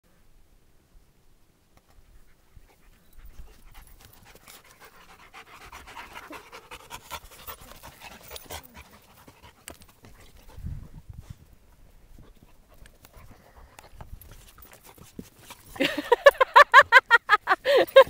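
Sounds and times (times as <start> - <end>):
dog panting: 2.1 - 10.8, 11.7 - 16.7.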